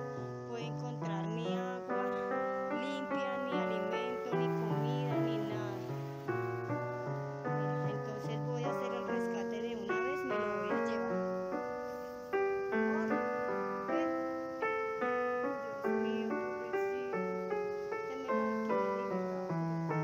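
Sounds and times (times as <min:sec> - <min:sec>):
slow solo piano music: 0:00.0 - 0:20.0.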